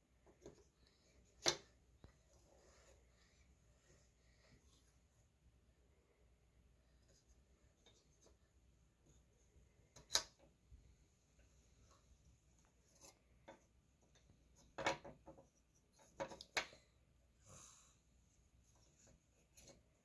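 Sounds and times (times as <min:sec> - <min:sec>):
wooden puzzle pieces clacking: 0:16.0 - 0:16.8.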